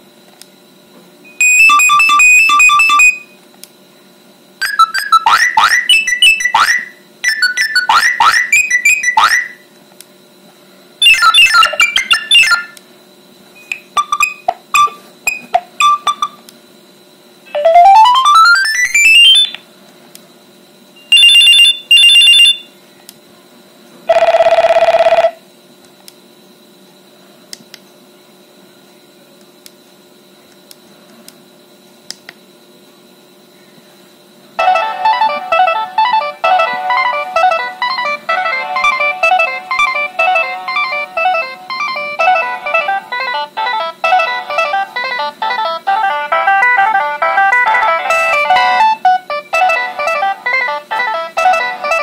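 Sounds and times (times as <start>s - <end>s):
phone alert tones: 1.4s - 3.3s, 13.7s - 16.4s, 17.5s - 19.6s, 21.1s - 22.6s, 34.6s - 45.8s.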